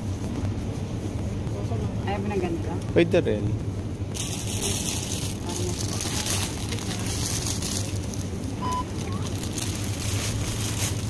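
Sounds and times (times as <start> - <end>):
plastic bag crinkling: 4.1 - 11.0.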